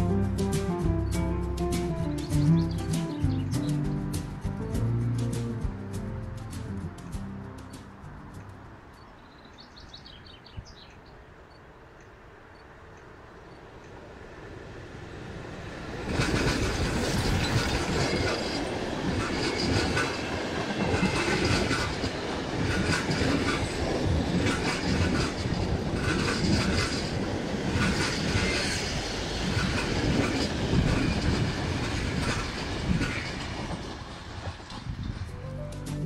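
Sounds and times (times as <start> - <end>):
steam train passing at speed: 11.8 - 35.6
wheels clattering over rail joints: 15.2 - 35.3.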